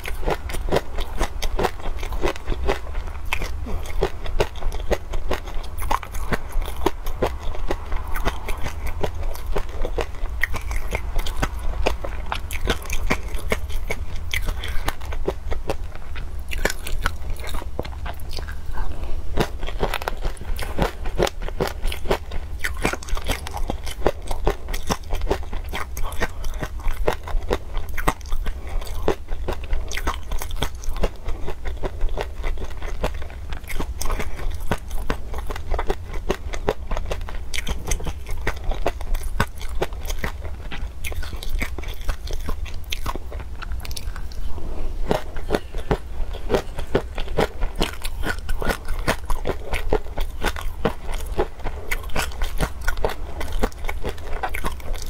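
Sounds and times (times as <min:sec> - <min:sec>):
wet mouth sounds: 0:00.0 - 0:36.8
chewing and crunching peanuts: 0:00.0 - 0:55.0
steady low hum: 0:00.0 - 0:55.0.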